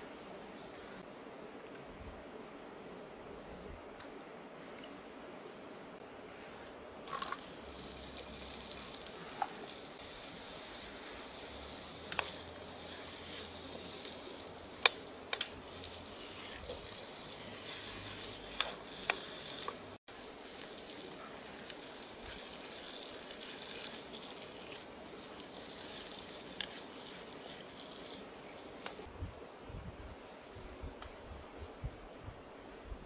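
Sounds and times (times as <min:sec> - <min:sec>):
onions sizzling in hot oil: 0:07.1 - 0:27.6.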